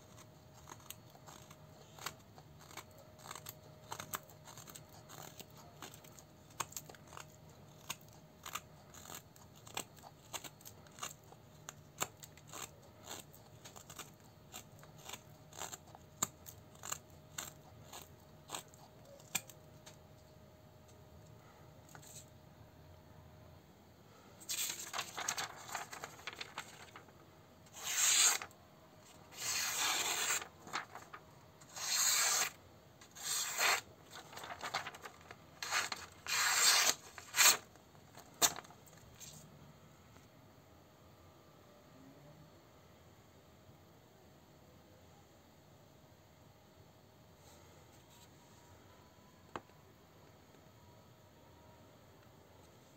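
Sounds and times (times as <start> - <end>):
knife shaving wooden stick: 0.0 - 20.0, 27.7 - 37.6
knife slicing through paper: 24.5 - 27.1, 27.7 - 28.5, 29.1 - 37.7.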